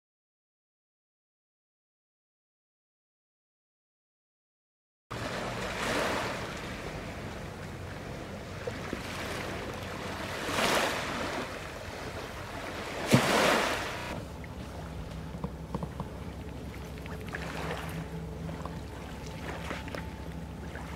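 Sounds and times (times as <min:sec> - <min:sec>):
low steady hum: 0:05.1 - 0:20.9
small waves washing ashore: 0:05.1 - 0:20.9.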